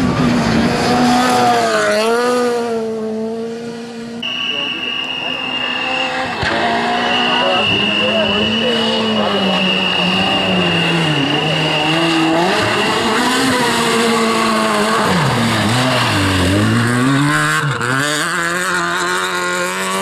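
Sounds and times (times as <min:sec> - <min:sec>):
rally car engine revving: 0:00.0 - 0:20.0.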